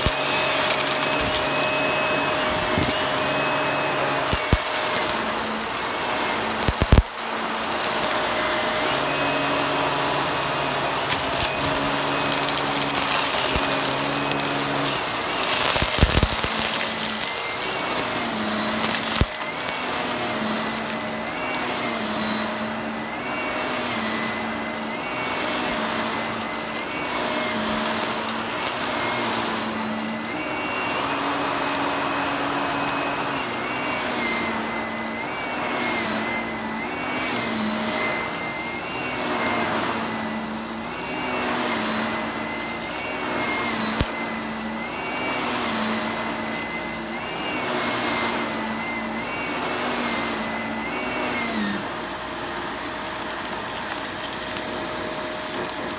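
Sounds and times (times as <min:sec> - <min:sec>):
upright vacuum cleaner on carpet: 0:00.0 - 0:55.9.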